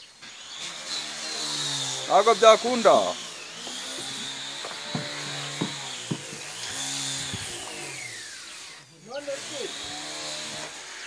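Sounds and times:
motor whining: 0:00.2 - 0:11.0
sharp taps: 0:03.6 - 0:06.5.

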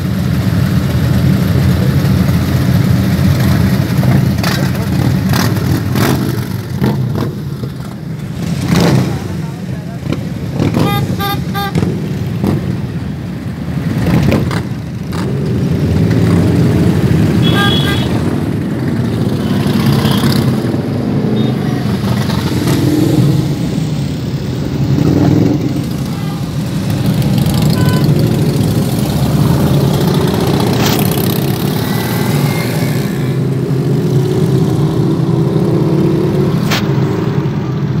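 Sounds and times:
motorcycle engines rumbling: 0:00.0 - 0:38.0
traffic noise: 0:00.0 - 0:38.0
short horn beeps: 0:10.8 - 0:11.8, 0:27.7 - 0:28.1.

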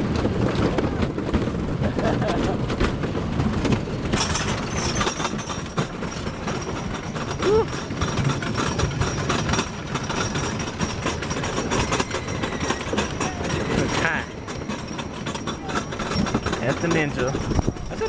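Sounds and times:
roller coaster rattling on track: 0:00.0 - 0:18.0.

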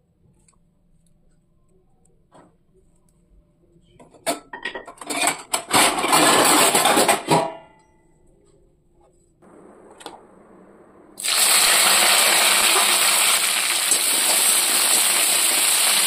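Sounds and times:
steel utensils rattling and scraping: 0:04.3 - 0:07.6.

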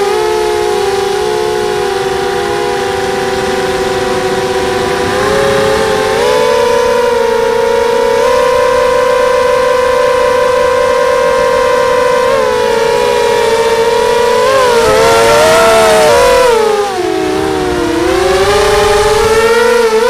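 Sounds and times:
quadcopter motors whining: 0:00.0 - 0:20.0.

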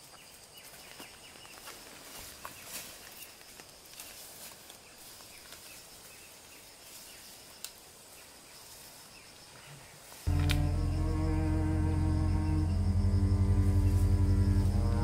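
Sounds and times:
soft ticks and chirps: 0:00.0 - 0:10.8
high-pitched insect drone: 0:10.3 - 0:15.0.

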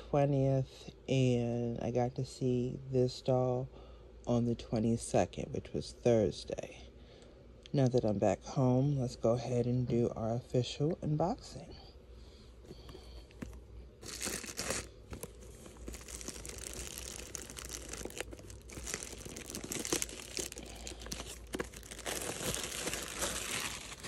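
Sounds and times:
plastic bag crinkling: 0:12.7 - 0:24.0.

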